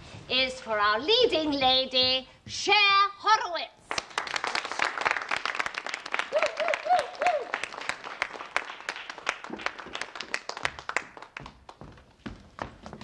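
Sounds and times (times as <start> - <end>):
people clapping: 3.8 - 13.0.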